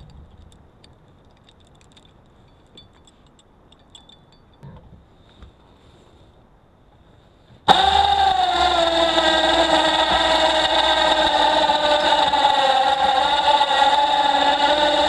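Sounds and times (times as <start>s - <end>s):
engine starting and idling: 7.7s - 15.0s.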